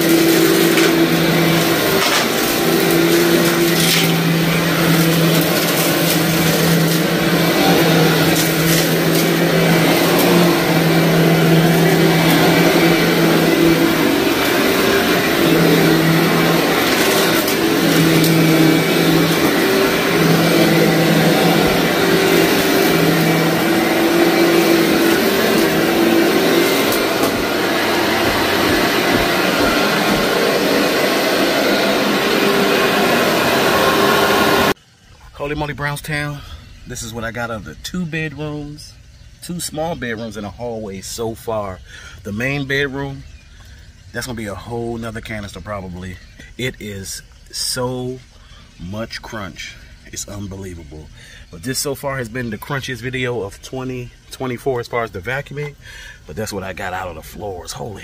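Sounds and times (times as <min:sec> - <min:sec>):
grit crunching into vacuum: 0:00.0 - 0:34.7
upright vacuum cleaner running: 0:00.0 - 0:34.8.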